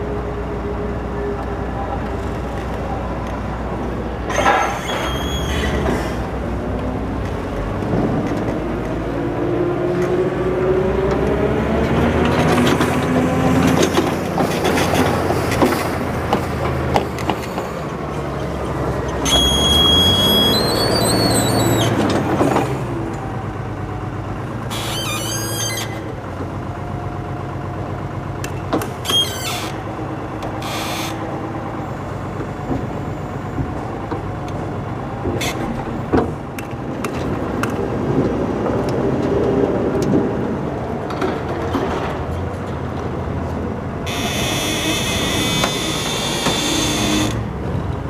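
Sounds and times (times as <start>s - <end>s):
forklift engine running: 0.0s - 48.0s
brief high squeals: 4.3s - 6.2s, 19.2s - 22.0s, 24.7s - 26.1s, 30.6s - 31.2s.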